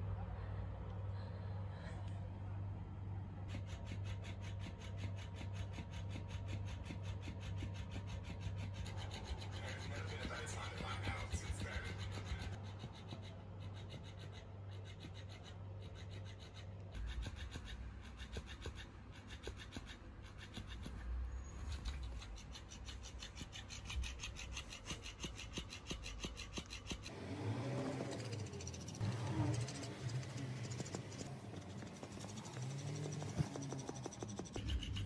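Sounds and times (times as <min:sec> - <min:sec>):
plush toy flapping on cloth: 0:27.8 - 0:34.8.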